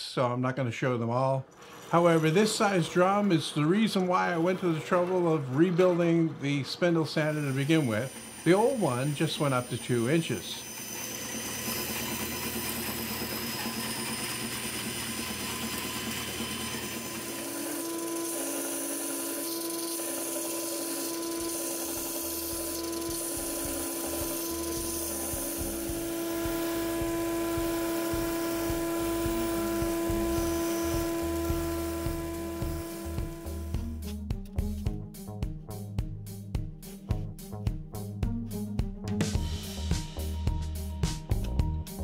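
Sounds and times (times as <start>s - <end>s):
machine humming: 1.4s - 34.5s
band saw cutting plywood: 1.5s - 34.8s
disc sander sanding wood: 1.6s - 34.8s.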